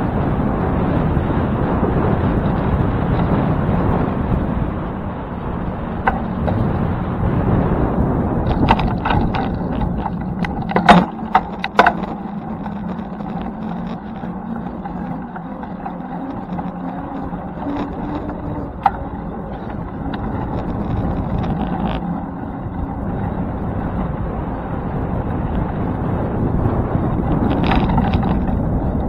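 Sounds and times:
bicycle road and wind noise: 0.0s - 29.0s.

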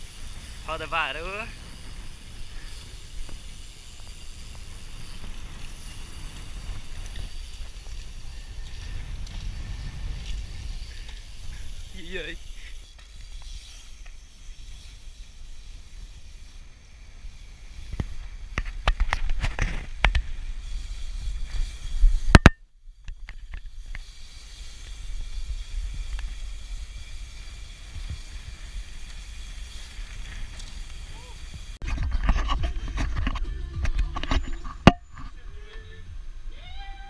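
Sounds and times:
wind buffeting microphone: 0.0s - 16.4s
bike clicks and knocks: 17.8s - 20.6s, 21.4s - 25.0s, 26.0s - 35.9s.

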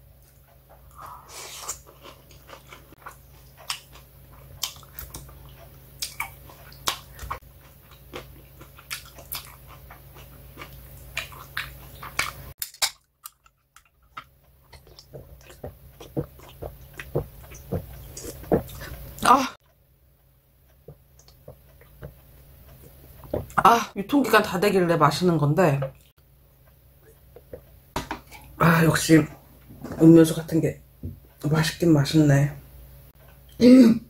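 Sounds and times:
chewing and biting food: 0.2s - 19.2s, 20.2s - 23.6s.

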